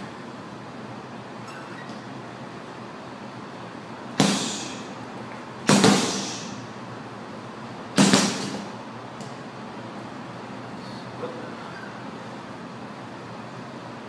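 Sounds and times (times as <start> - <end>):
punches hitting heavy bag: 4.2 - 4.8, 5.6 - 6.6, 8.0 - 8.7.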